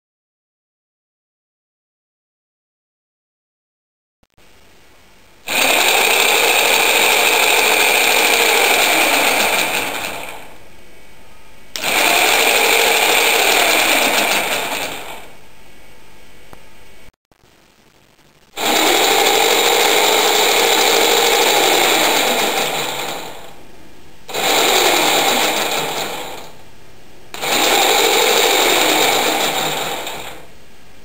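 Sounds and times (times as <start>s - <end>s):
electric motor whirring: 5.4s - 10.6s, 11.8s - 15.4s, 18.6s - 23.6s, 24.3s - 26.6s, 27.4s - 30.5s.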